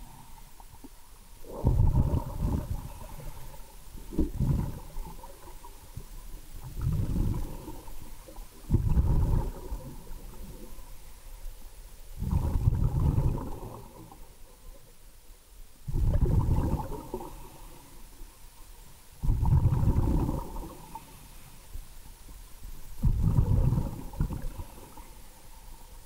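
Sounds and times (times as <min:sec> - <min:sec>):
underwater exhaled bubbles: 0:00.0 - 0:11.0, 0:12.2 - 0:14.9, 0:15.8 - 0:18.0, 0:19.2 - 0:21.4, 0:23.0 - 0:25.4
underwater water noise: 0:00.0 - 0:26.0.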